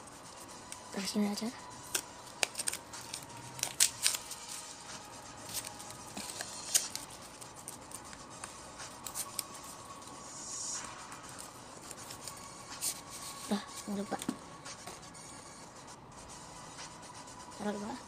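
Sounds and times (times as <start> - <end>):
paper wrapping crinkling and tearing: 1.8 - 10.2.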